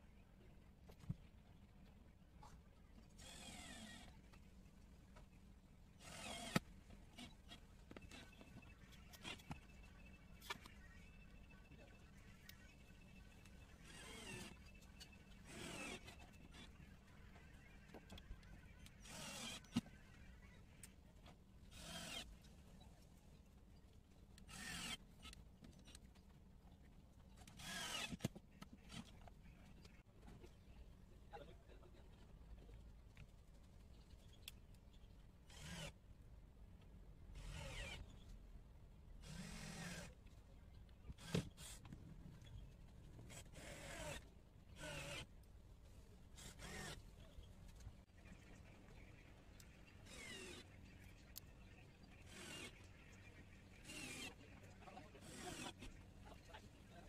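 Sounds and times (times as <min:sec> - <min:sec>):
cordless drill motor bursts: 0:03.2 - 0:04.2, 0:06.0 - 0:08.4, 0:13.8 - 0:14.7, 0:15.3 - 0:16.8, 0:18.6 - 0:20.0, 0:21.7 - 0:22.3, 0:24.5 - 0:25.4, 0:27.4 - 0:28.3, 0:35.5 - 0:36.0, 0:37.4 - 0:38.1, 0:39.2 - 0:40.2, 0:41.1 - 0:41.9, 0:43.3 - 0:45.3, 0:46.4 - 0:47.1, 0:50.0 - 0:50.7, 0:52.1 - 0:52.9, 0:53.8 - 0:54.4, 0:55.2 - 0:55.9
drill clicking: 0:06.0 - 0:08.4, 0:24.5 - 0:25.4, 0:27.4 - 0:28.3, 0:35.5 - 0:36.0, 0:37.4 - 0:38.0, 0:44.8 - 0:45.3, 0:46.4 - 0:47.0, 0:52.2 - 0:52.8, 0:53.8 - 0:54.4, 0:55.2 - 0:55.9.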